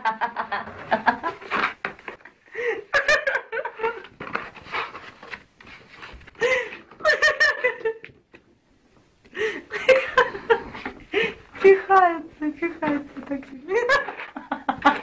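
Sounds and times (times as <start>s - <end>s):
people laughing: 0.0s - 1.5s, 13.7s - 15.0s.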